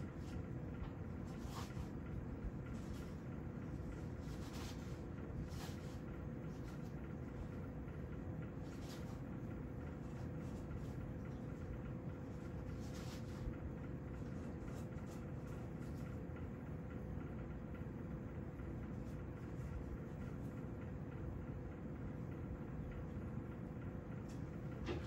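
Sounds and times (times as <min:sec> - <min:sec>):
soft rustles: 0:00.0 - 0:16.4
low hum with faint tone: 0:00.0 - 0:25.0.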